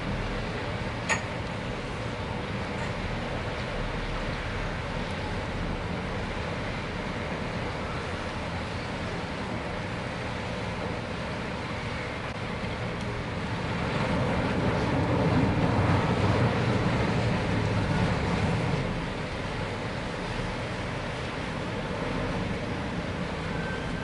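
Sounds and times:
ferry engines rumbling: 0:00.0 - 0:24.0.

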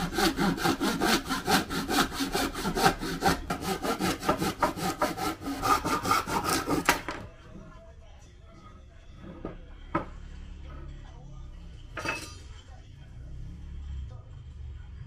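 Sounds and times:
hand saw cutting wood: 0:00.0 - 0:07.2.

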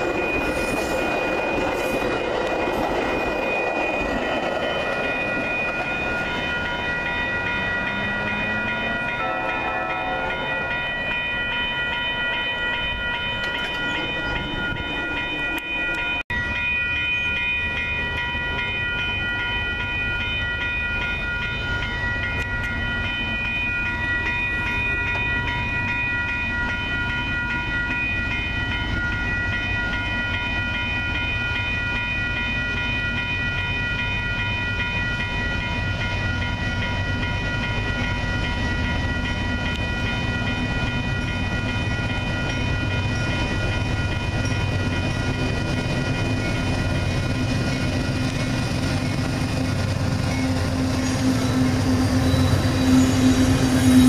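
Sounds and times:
crossing warning bell ringing: 0:00.0 - 0:54.0
diesel locomotive rumble: 0:38.5 - 0:54.0.

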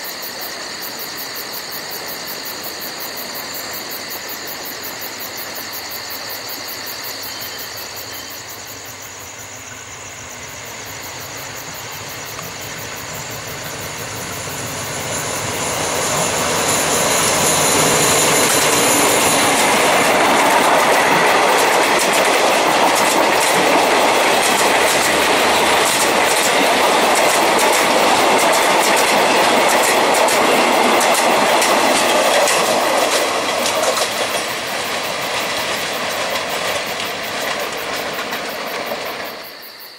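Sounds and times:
train rumble: 0:00.0 - 0:39.9
diesel locomotive passing: 0:00.2 - 0:39.8
train wheels clicking over rail joints: 0:10.4 - 0:39.6.

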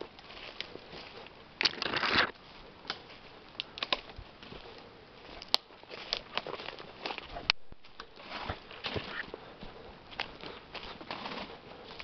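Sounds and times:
footsteps crunching through leaves: 0:00.0 - 0:03.4, 0:04.0 - 0:12.0
twigs snapping: 0:01.6 - 0:04.2, 0:05.4 - 0:07.2.

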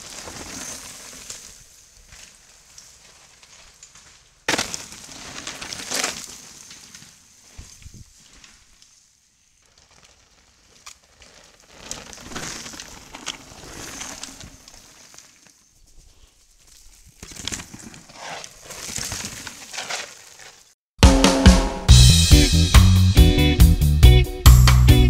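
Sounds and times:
tyres crunching and skidding: 0:00.0 - 0:20.8
bike clicks and rattles: 0:09.7 - 0:20.7.

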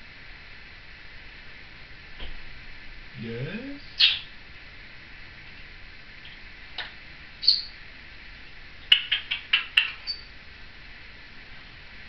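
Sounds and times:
parrot chirps and clicks: 0:04.0 - 0:04.3, 0:06.2 - 0:07.7, 0:08.8 - 0:10.3
parrot thin whistle: 0:07.4 - 0:07.7.

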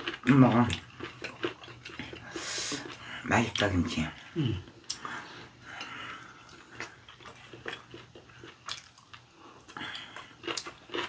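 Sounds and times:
people chewing with wet clicks: 0:00.0 - 0:11.0.

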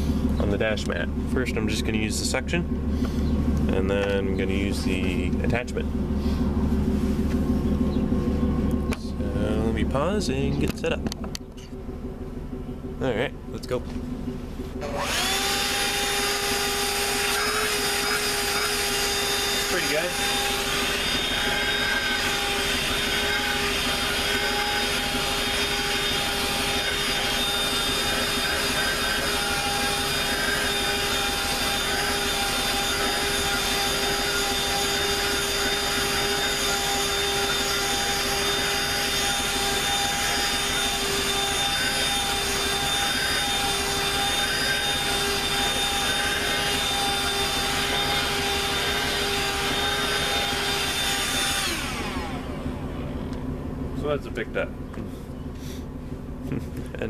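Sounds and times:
vacuum motor winding down: 0:00.0 - 0:13.2, 0:14.1 - 0:53.4
handheld vacuum whining: 0:14.7 - 0:53.0.

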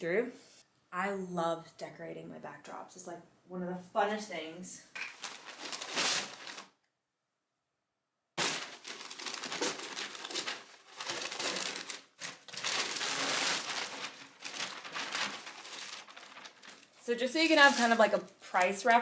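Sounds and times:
kraft paper crinkling: 0:05.0 - 0:06.7, 0:08.4 - 0:19.0.

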